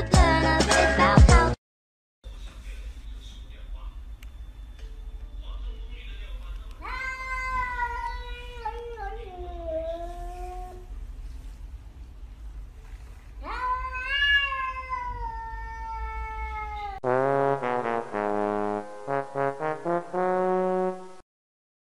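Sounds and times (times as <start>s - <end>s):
music: 0.0s - 1.6s, 17.1s - 21.2s
cat meowing: 6.8s - 10.8s, 13.4s - 17.0s.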